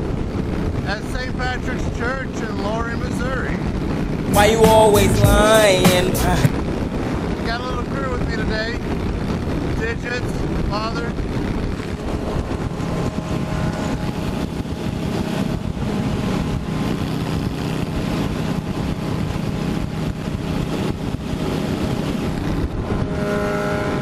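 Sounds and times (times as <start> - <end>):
wind rushing over microphone: 0.0 - 4.3, 6.5 - 24.0
motorcycle engine cruising: 11.6 - 24.0.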